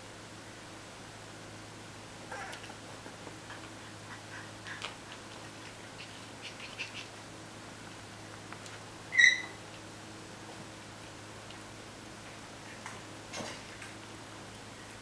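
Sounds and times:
puppies playing and scuffling: 2.3 - 15.0
puppy squeaks: 9.1 - 9.6.

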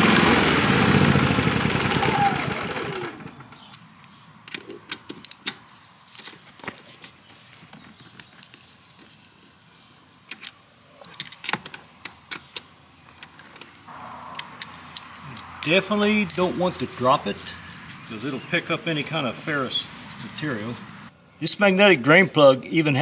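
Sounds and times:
metallic tool clinks: 14.4 - 17.9.

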